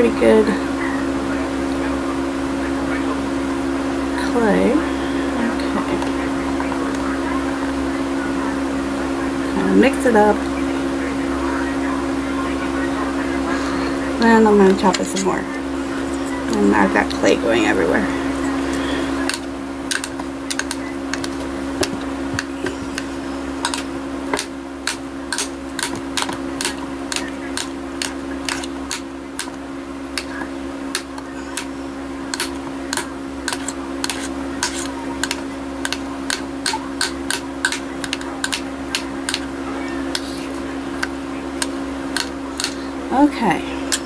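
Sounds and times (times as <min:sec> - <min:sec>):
steady low hum: 0:00.0 - 0:44.0
blade chopping clay with clicks: 0:32.3 - 0:39.4.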